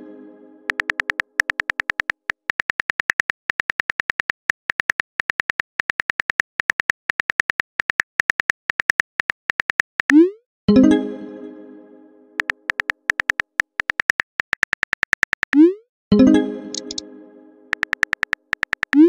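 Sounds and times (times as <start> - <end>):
phone keyboard clicks: 0.7 - 10.2, 12.4 - 15.6, 16.7 - 17.0, 17.7 - 19.0.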